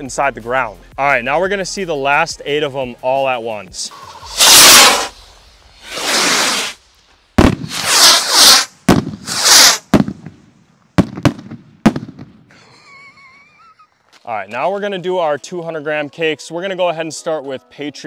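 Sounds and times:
rocket hissing whoosh: 3.8s - 10.1s
firework bangs: 4.0s - 12.4s.

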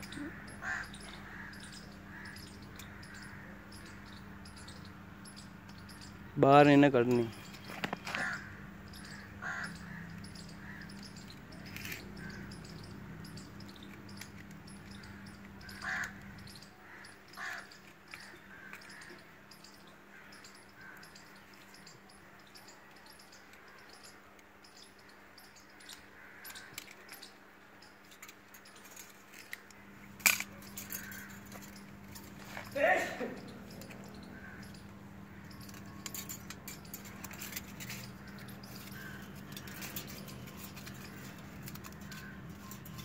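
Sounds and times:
crow cawing: 0.0s - 4.2s, 8.0s - 11.2s, 14.9s - 21.3s, 25.9s - 27.3s, 30.7s - 36.0s.

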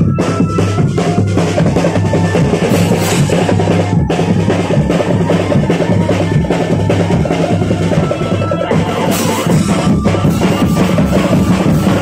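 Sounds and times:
loud drum music: 0.0s - 12.0s.

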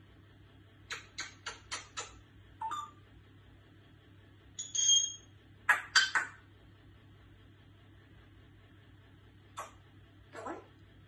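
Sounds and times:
parrot clicking: 0.9s - 2.2s.

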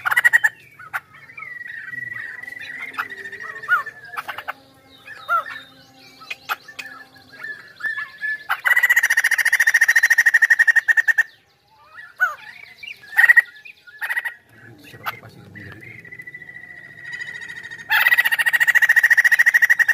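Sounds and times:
bird singing: 0.0s - 19.9s
rapid bird chattering: 0.0s - 19.9s
short bird calls: 0.0s - 19.9s
bird gliding whistles: 15.0s - 19.9s.

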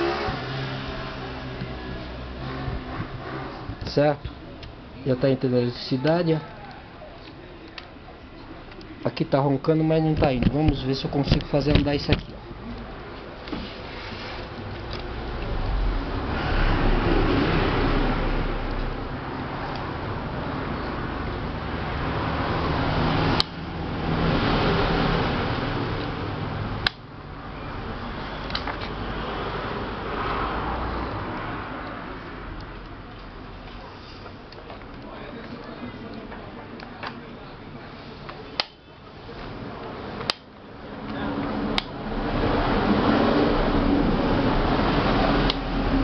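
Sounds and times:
sharp click: 38.6s - 38.8s.

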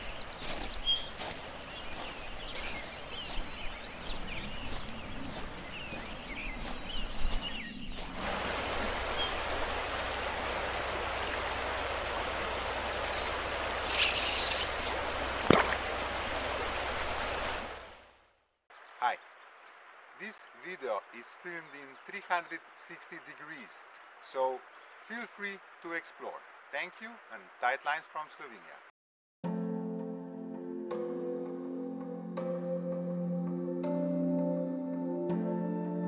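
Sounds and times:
birds chirping and singing: 0.0s - 9.7s
flowing river water: 8.0s - 18.2s.

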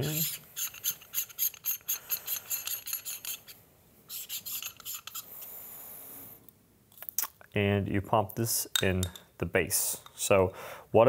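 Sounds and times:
metal screw threads rasping: 0.0s - 5.4s.

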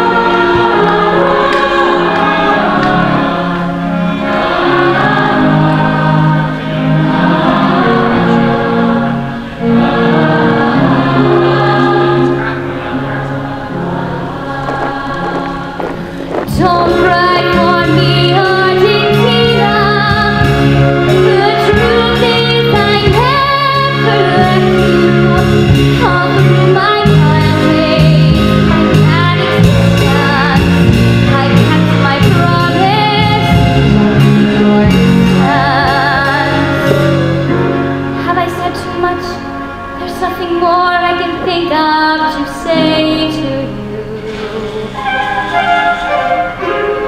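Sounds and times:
instrumental accompaniment: 0.0s - 47.0s
woman singing with vibrato: 14.2s - 33.8s, 35.4s - 37.4s.

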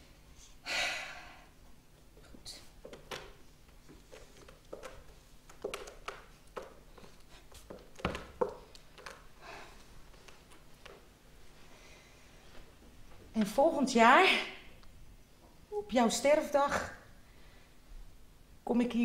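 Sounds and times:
props tapping and knocking: 4.4s - 9.2s.

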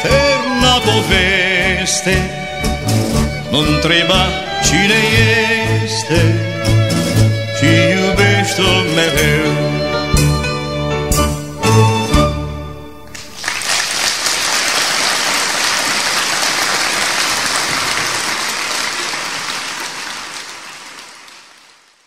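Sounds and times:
song ending: 0.0s - 13.2s
audience applauding: 13.1s - 22.0s.

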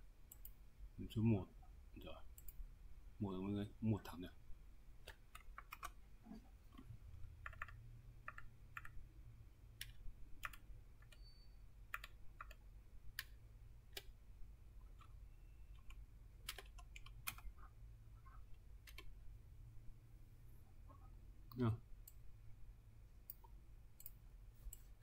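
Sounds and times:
faint low hum: 0.0s - 25.0s
keyboard keys clicking: 7.4s - 9.0s, 11.9s - 13.3s.

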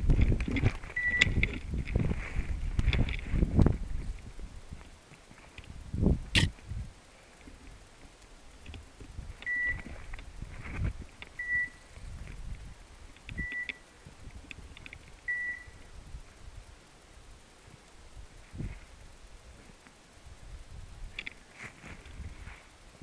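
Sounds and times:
footsteps pushing through brush: 0.0s - 6.9s, 8.8s - 11.2s, 21.4s - 23.0s
beeper collar high beeps: 1.0s - 1.4s, 9.4s - 9.8s, 11.4s - 11.8s, 15.3s - 15.8s.

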